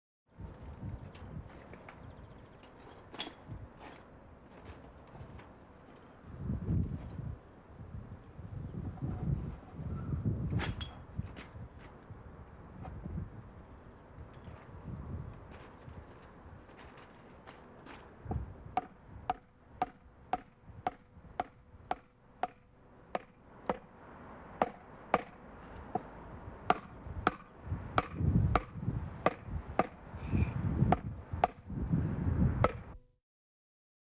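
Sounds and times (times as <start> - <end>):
hammer handle tapping concrete slab: 18.3 - 23.9, 24.6 - 26.1, 26.7 - 30.0, 32.7 - 33.0.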